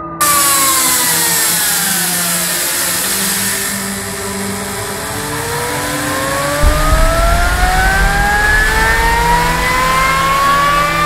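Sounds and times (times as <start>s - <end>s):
motor whine: 0.0s - 11.0s
steady high hiss: 0.0s - 11.0s
low rumble: 6.6s - 11.0s.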